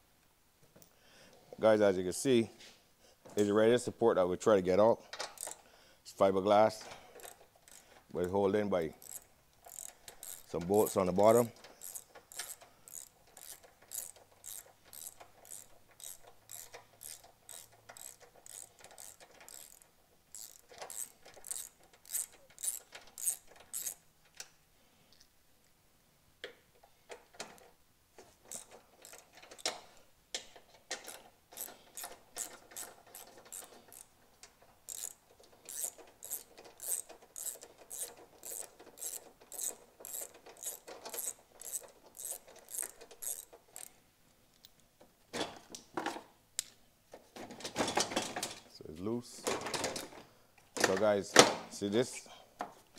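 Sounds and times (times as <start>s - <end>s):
ratchet wrench clicking: 5.2s - 5.6s, 7.2s - 8.0s, 9.0s - 24.0s, 28.5s - 34.1s, 34.8s - 44.0s.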